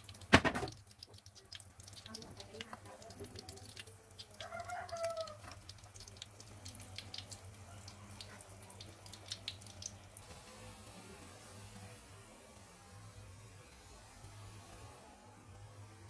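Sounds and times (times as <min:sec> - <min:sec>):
chicken calling: 0:04.4 - 0:05.6.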